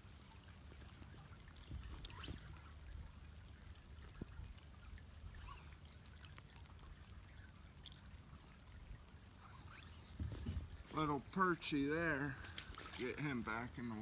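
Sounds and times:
water trickling: 0.0 - 14.0
faint ticks: 0.3 - 8.3.

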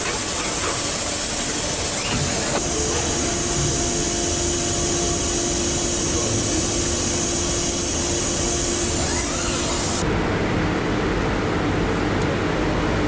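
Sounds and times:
machinery hissing and humming: 0.0 - 10.1
rising machine whine: 1.6 - 10.0.

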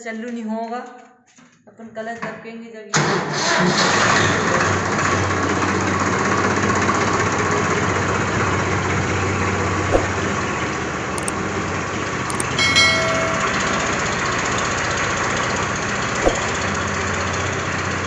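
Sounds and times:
clicks: 12.3 - 14.1
short bright chime: 12.3 - 14.3.

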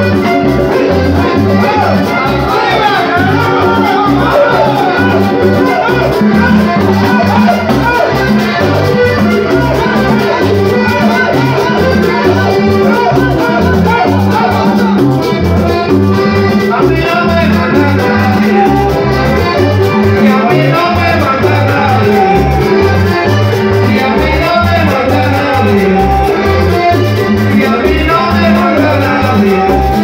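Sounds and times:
accordion melody: 0.0 - 30.0
percussion: 0.0 - 30.0
repeating bass line: 0.0 - 30.0.

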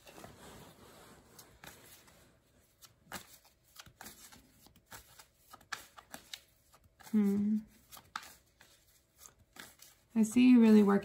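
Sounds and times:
cards being shuffled: 0.0 - 10.2.

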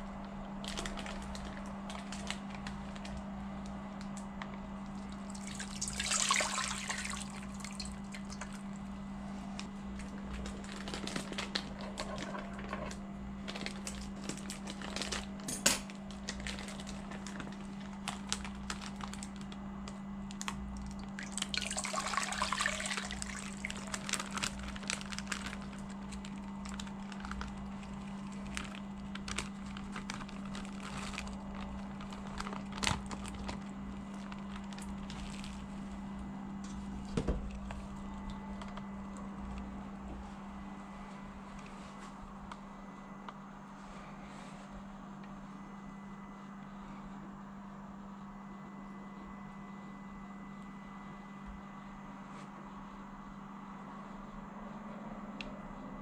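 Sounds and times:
steady low hum: 0.0 - 56.0
plastic bags crinkling: 0.2 - 8.8, 9.5 - 36.2
water pouring into pot: 5.3 - 8.4, 21.1 - 23.7.

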